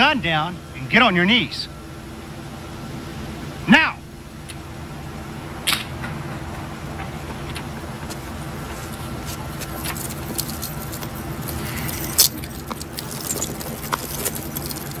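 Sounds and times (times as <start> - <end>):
steady low rumble: 0.0 - 15.0
handcuffs jingling and clicking: 9.5 - 15.0.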